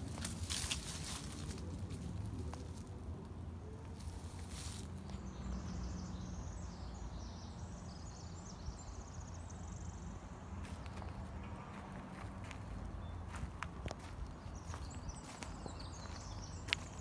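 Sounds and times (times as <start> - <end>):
low rumble of wind: 0.0 - 17.0
songbird singing with trill: 3.6 - 10.1, 12.9 - 17.0.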